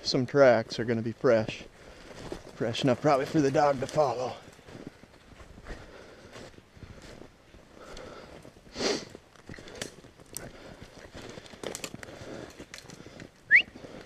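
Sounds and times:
footsteps crunching through snow: 1.4s - 14.0s
small clicks and crackles: 1.9s - 5.5s, 7.8s - 14.0s.

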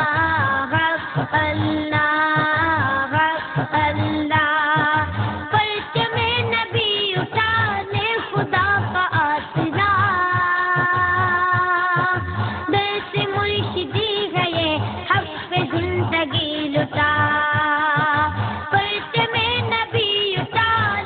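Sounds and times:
boy singing devotional song: 0.0s - 21.0s
steady low beat: 0.0s - 21.0s.

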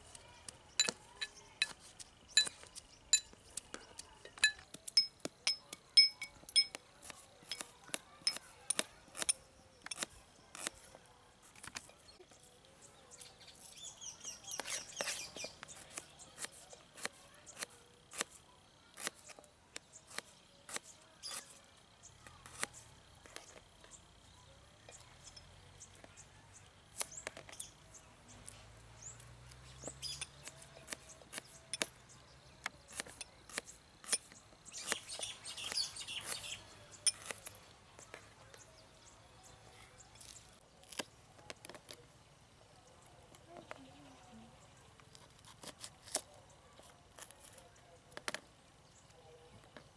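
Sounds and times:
birds chirping faintly: 0.0s - 49.9s
knife slicing onions on tray: 7.0s - 11.9s, 14.5s - 21.6s, 22.2s - 23.7s, 29.4s - 31.9s, 32.6s - 38.1s.

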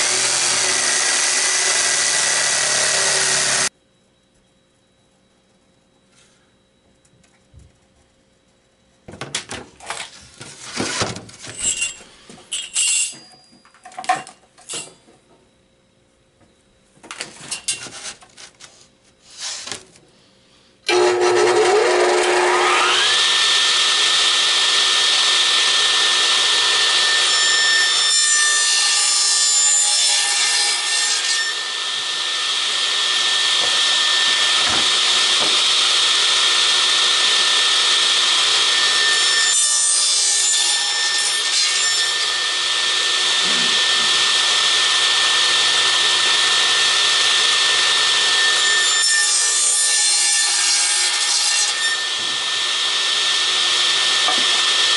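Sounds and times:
radial arm saw whining: 0.0s - 3.7s, 20.9s - 54.9s.

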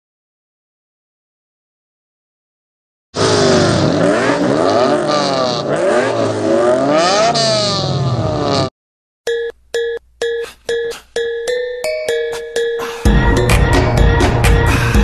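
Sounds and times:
race car engines revving: 3.2s - 8.7s.

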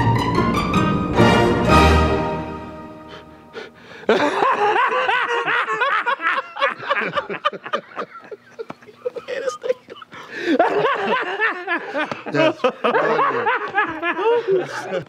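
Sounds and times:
orchestral string music: 0.0s - 3.9s
man laughing loudly: 3.8s - 15.0s.

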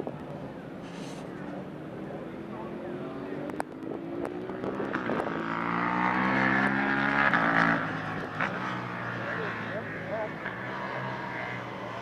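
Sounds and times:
electric motorcycle whine passing: 4.4s - 12.0s.

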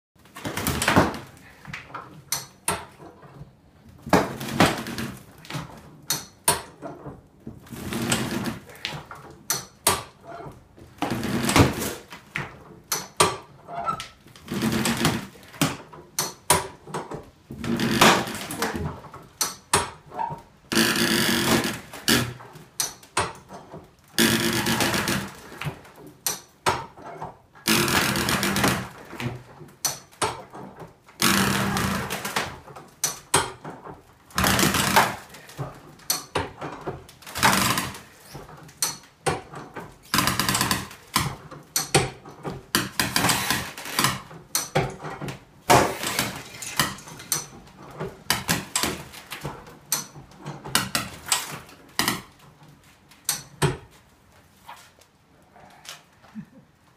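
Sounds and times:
farm jack ratcheting: 12.9s - 53.7s.

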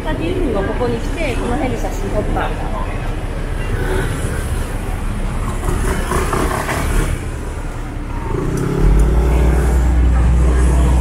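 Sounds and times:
city street traffic: 0.0s - 11.0s
vehicle engine running: 2.0s - 11.0s.

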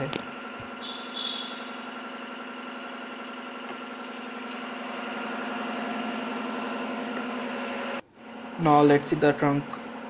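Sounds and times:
car engine idling: 0.0s - 7.9s.

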